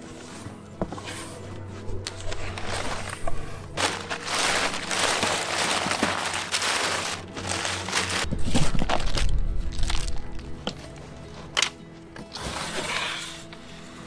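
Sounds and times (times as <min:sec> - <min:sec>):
cardboard being handled: 0:02.0 - 0:09.3
packing paper rustling: 0:02.0 - 0:10.4.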